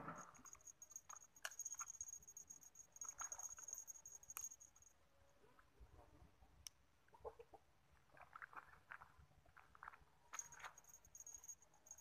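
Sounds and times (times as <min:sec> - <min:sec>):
high-pitched insect trill: 0:00.2 - 0:05.0, 0:10.4 - 0:12.0.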